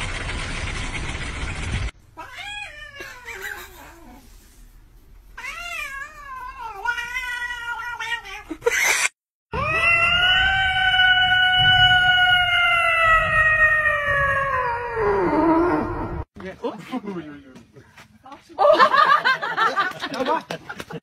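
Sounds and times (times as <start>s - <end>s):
cat meowing: 2.2s - 4.2s, 5.4s - 8.6s, 9.6s - 15.9s
cats yowling: 2.2s - 4.2s, 5.4s - 8.8s, 9.6s - 16.2s.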